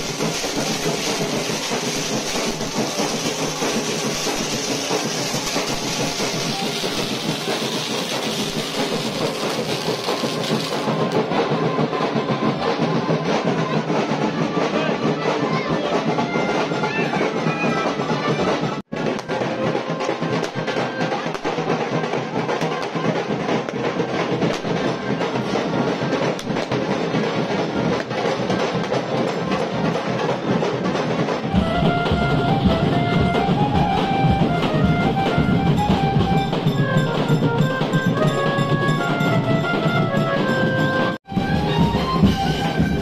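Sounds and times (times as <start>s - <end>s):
drum-led music: 0.0s - 43.0s
melody of held notes: 31.5s - 43.0s.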